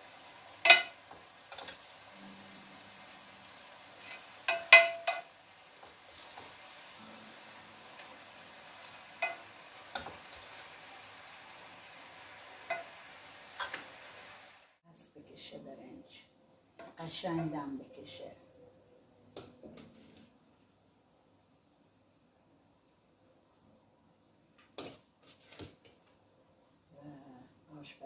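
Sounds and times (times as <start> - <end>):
rice sizzling in a pot: 0.0 - 14.8.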